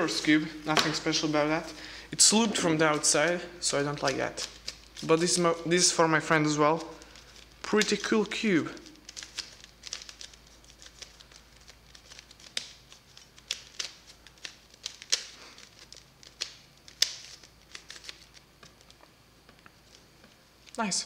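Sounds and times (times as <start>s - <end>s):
puzzle cube clicking as turned: 9.1s - 18.3s.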